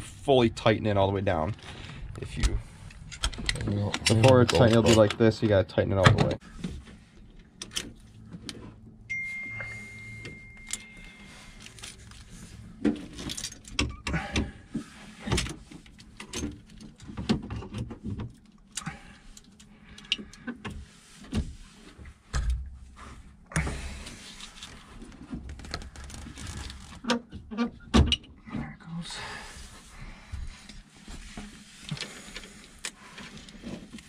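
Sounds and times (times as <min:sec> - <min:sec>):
metallic clinks and rattles of hardware: 0:09.9 - 0:12.2, 0:13.0 - 0:14.0.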